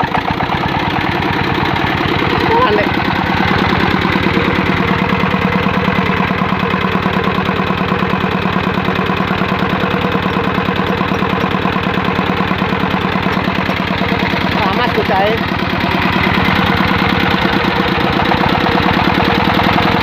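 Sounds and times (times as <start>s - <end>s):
diesel engine chugging: 0.0s - 20.0s.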